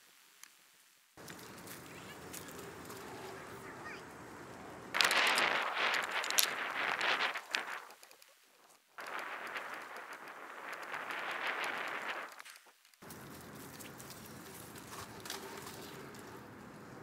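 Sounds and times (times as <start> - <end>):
bike clicks and rattles: 1.2 - 3.4, 4.4 - 17.0
bike tyres rolling over dirt: 1.2 - 17.0
wind on microphone: 4.3 - 8.1, 9.0 - 12.4.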